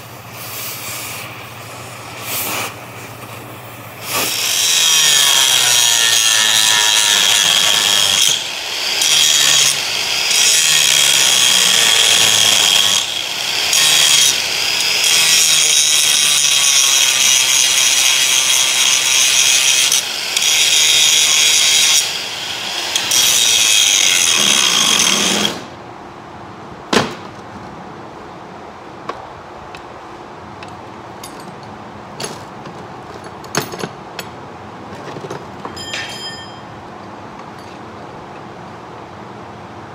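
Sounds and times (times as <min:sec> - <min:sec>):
angle grinder grinding metal: 0:04.0 - 0:25.7
metal chain knocks: 0:35.7 - 0:36.7.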